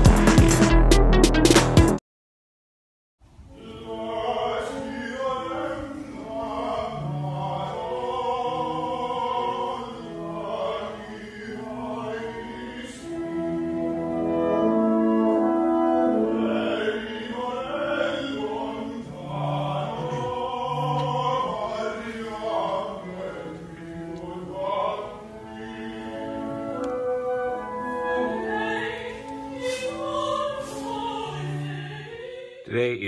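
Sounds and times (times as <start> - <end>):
opera singing: 3.5 - 33.0.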